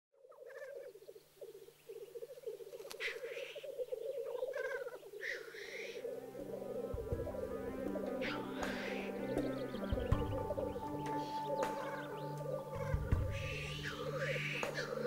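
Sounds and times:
grouse bubbling song: 0.2s - 15.0s
grouse hissing calls: 0.2s - 15.0s
music: 5.6s - 15.0s.

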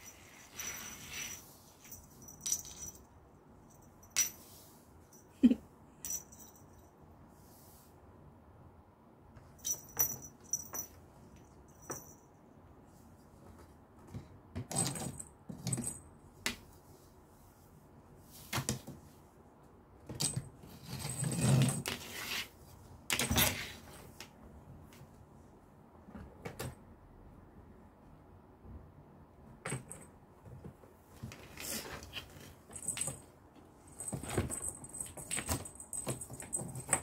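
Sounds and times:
light metallic jingling: 0.0s - 5.3s, 6.0s - 6.9s, 9.6s - 11.0s
cat toys rustling: 30.5s - 37.0s.

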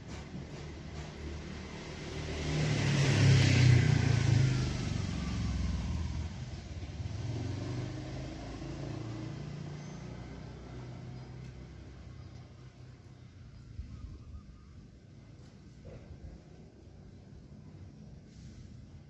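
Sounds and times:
vehicle driving past: 0.0s - 14.0s.

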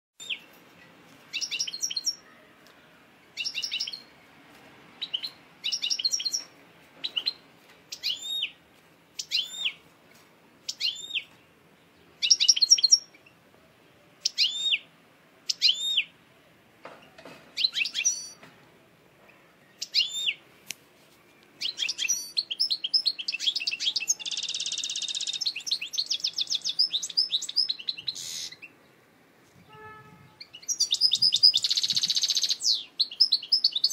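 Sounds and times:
goldfinch singing: 1.3s - 2.3s, 3.4s - 4.1s, 5.0s - 8.6s, 9.2s - 9.8s, 12.2s - 13.4s, 21.6s - 28.8s, 30.4s - 33.9s.

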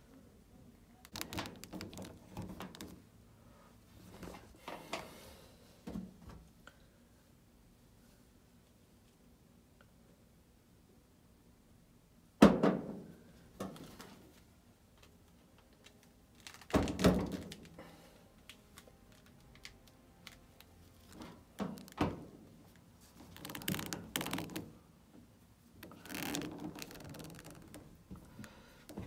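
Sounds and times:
rustling: 15.7s - 24.8s, 25.6s - 29.0s.

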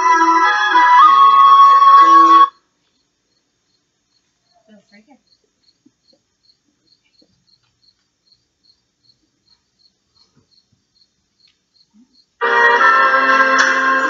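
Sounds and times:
cricket chirping: 1.4s - 12.4s.

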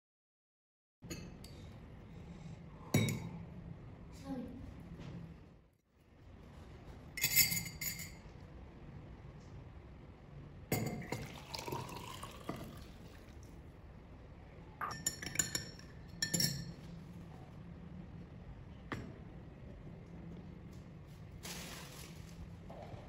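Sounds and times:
metal spoon clinking: 7.2s - 8.2s, 14.8s - 16.8s
liquid pouring into glass: 10.9s - 13.6s.

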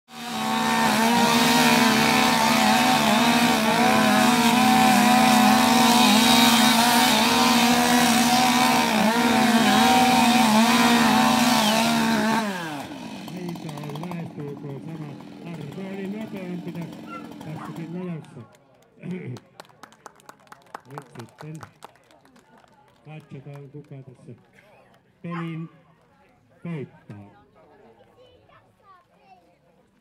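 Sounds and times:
chainsaw cutting logs: 0.1s - 19.4s.

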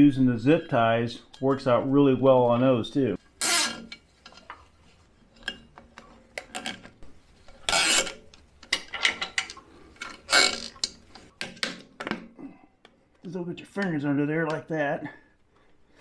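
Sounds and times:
zip ties rasping: 10.3s - 10.7s.

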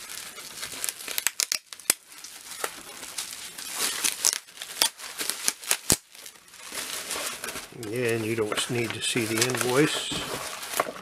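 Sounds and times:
bubble wrap crinkling: 0.0s - 11.0s
cardboard mailer handled: 6.8s - 11.0s.

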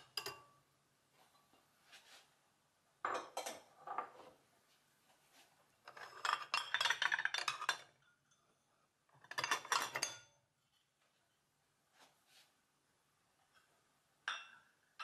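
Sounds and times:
dishes clinking in wire rack: 9.2s - 10.3s.

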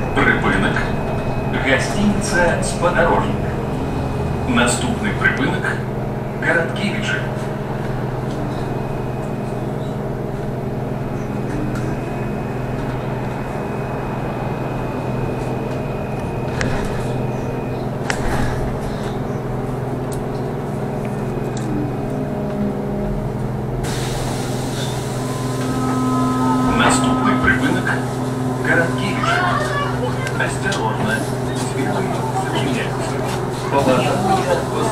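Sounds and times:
road and tyre noise: 0.0s - 34.9s
thin high whine: 24.7s - 33.2s.

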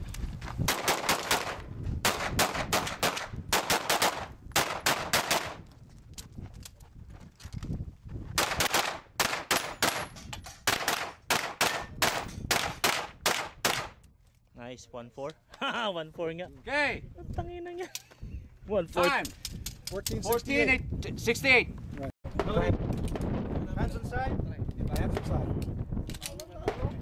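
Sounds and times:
handgun shots: 8.4s - 14.0s.

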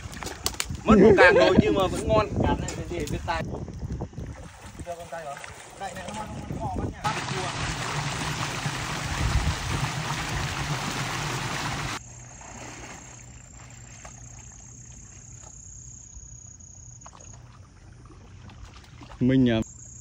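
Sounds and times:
water sloshing from wading: 3.9s - 19.6s
water gushing into container: 4.3s - 12.0s.

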